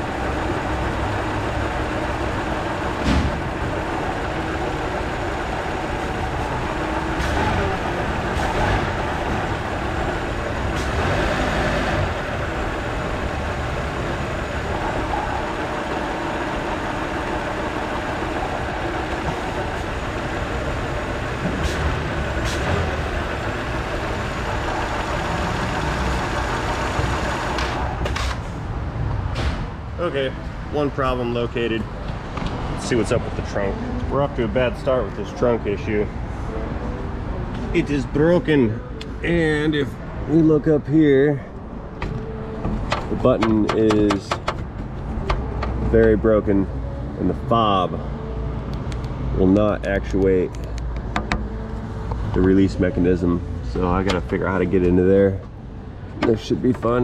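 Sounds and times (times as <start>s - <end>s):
car engine idling with rattle: 0.0s - 28.4s, 41.3s - 46.5s
engine knocks: 0.0s - 28.4s, 42.0s - 46.2s.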